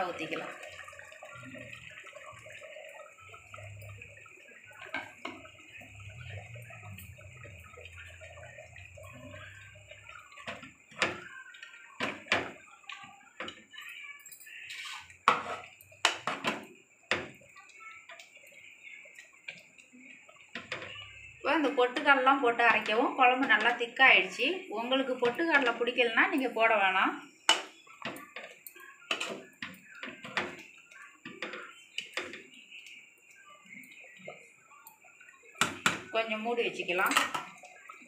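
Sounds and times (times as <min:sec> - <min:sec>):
simmering curry: 0:00.0 - 0:38.0
spoon scraping against pot: 0:14.7 - 0:16.6.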